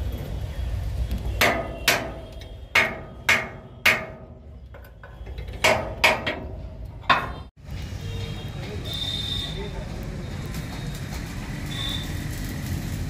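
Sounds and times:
hammer striking steel: 0:01.4 - 0:04.6, 0:05.6 - 0:07.5.

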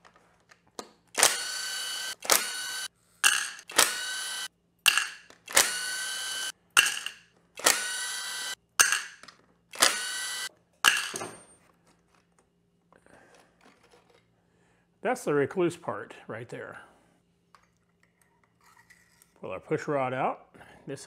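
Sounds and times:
cordless drill whirring: 0:01.2 - 0:04.5, 0:05.5 - 0:06.5, 0:07.6 - 0:08.6, 0:09.8 - 0:10.5.

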